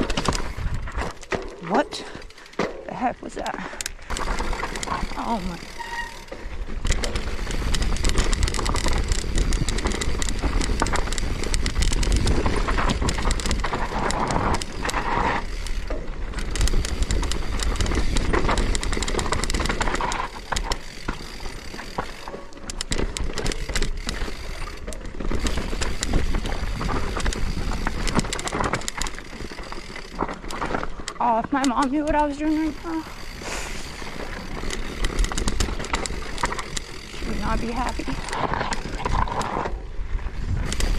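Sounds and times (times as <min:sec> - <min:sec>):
bike clattering and rattling: 0:00.0 - 0:40.9
bike tyres grinding over gravel: 0:00.0 - 0:40.9
wind rumble on microphone: 0:38.0 - 0:40.9.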